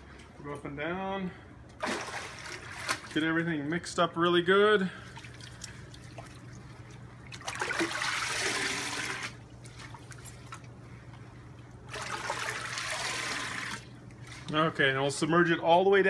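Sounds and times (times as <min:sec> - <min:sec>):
water sloshing in a plastic barrel: 0:01.8 - 0:03.4, 0:04.9 - 0:14.8.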